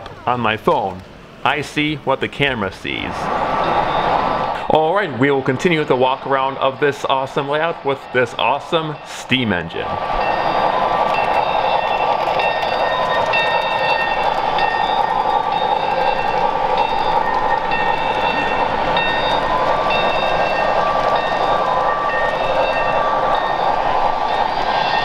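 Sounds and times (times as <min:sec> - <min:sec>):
model train running: 0:00.0 - 0:25.0
high ringing tone: 0:03.6 - 0:04.4, 0:08.8 - 0:25.0.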